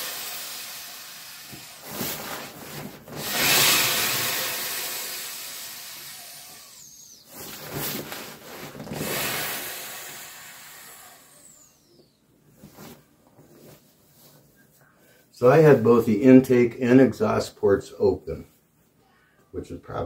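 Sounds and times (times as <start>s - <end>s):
air rushing out of valves: 0.0s - 11.9s
fabric rubbing: 1.8s - 3.2s, 7.3s - 9.2s, 12.5s - 14.6s.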